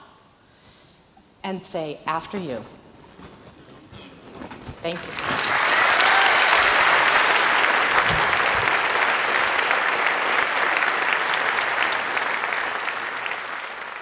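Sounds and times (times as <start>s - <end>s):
audience applauding: 5.0s - 14.0s.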